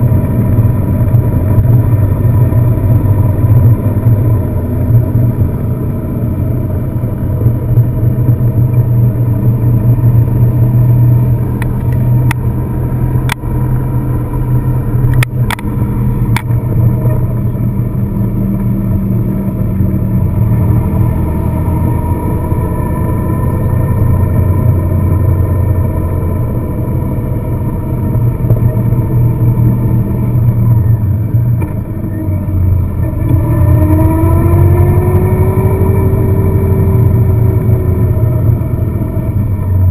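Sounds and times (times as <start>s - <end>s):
car engine running: 0.0s - 39.9s
road noise: 0.0s - 39.9s.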